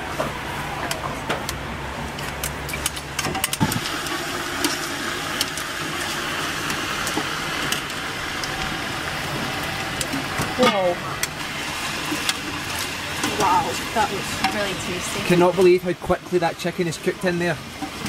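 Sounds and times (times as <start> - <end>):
chicken sizzling in hot oil: 2.8 - 18.0
metal utensils clinking on pot: 12.1 - 16.8.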